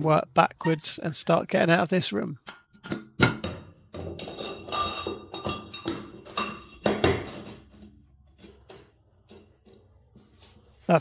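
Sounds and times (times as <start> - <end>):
tiles knocking and clinking: 2.5 - 10.2.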